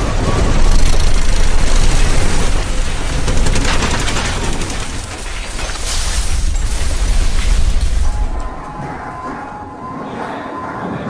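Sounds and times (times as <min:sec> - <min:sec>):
deep rumble: 0:00.0 - 0:10.4
clatter of falling objects: 0:00.2 - 0:08.6.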